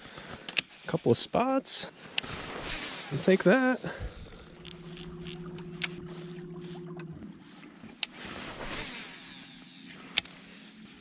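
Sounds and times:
fishing reel whirring: 0:04.1 - 0:11.0
reel and rod clicks: 0:04.6 - 0:05.9, 0:08.9 - 0:11.0.

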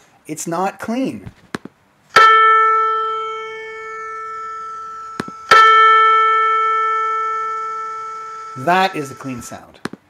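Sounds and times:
piano note: 0:02.2 - 0:09.6.

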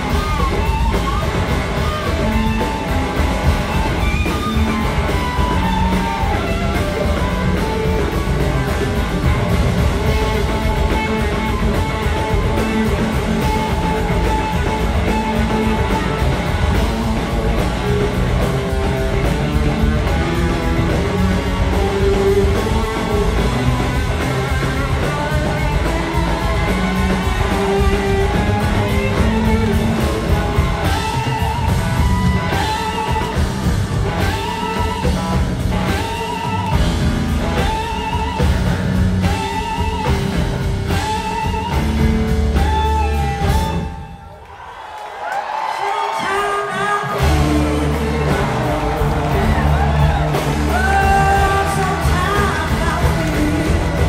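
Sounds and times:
bass: 0:00.0 - 0:44.4, 0:45.4 - 0:54.0
electric guitar: 0:00.0 - 0:44.4, 0:45.5 - 0:54.0
drums: 0:00.0 - 0:54.0
person singing: 0:46.2 - 0:54.0.

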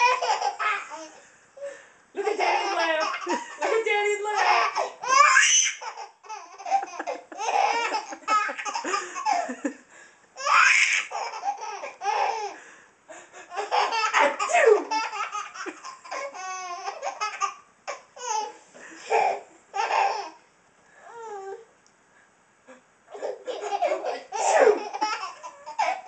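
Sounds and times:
baby laughing: 0:00.0 - 0:01.2, 0:02.2 - 0:09.7, 0:10.4 - 0:12.6, 0:13.5 - 0:20.4, 0:23.1 - 0:26.0.

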